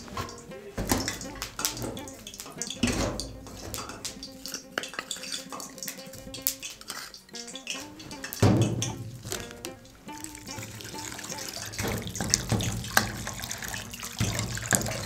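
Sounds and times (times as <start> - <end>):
background music: 0.0 - 15.0
metal spoon scraping in a bowl: 1.1 - 9.5.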